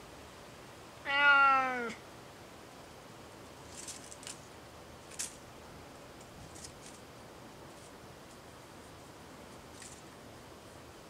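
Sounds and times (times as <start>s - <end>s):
cat meowing: 1.0s - 2.0s
faint rustles: 3.5s - 11.0s.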